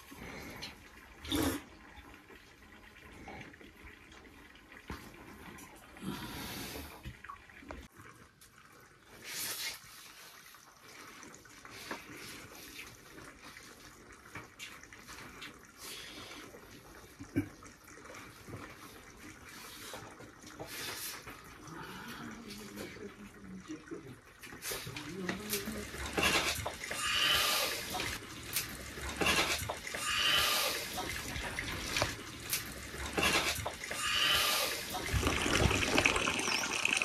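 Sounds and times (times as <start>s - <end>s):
water splashing: 24.6s - 37.0s.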